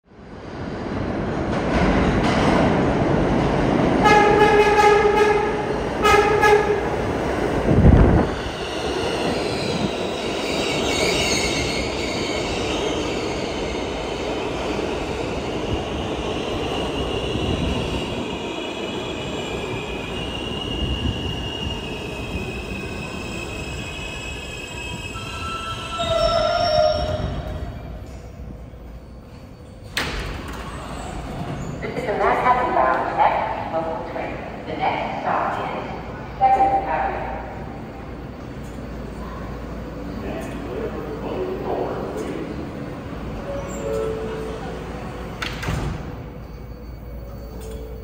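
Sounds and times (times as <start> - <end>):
subway train horn blasts: 4.0 - 7.1
high brake squeal: 24.5 - 28.0, 43.5 - 44.5.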